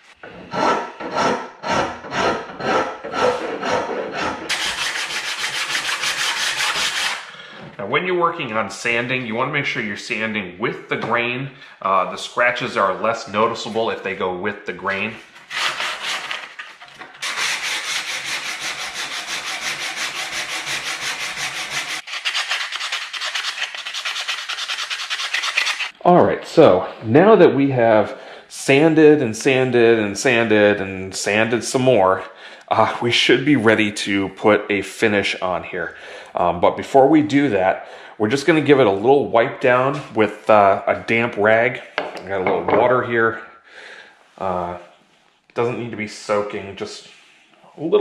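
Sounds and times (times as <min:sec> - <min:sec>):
sanding wood by hand: 0:00.0 - 0:07.3, 0:15.5 - 0:26.0.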